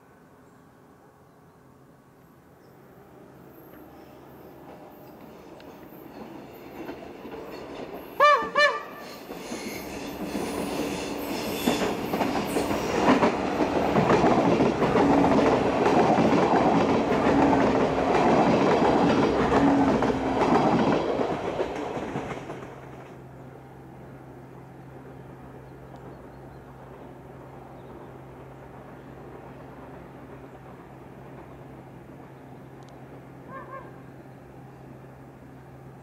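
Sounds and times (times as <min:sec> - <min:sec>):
diesel railcar engine running: 0:03.0 - 0:36.0
train wheels clicking over rail joints: 0:04.6 - 0:23.2.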